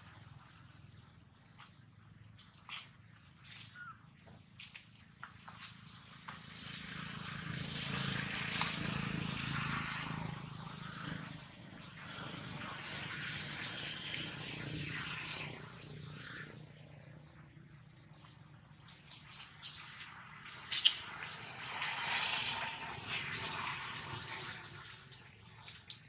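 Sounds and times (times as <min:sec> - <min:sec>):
distant engine: 0:05.4 - 0:25.8.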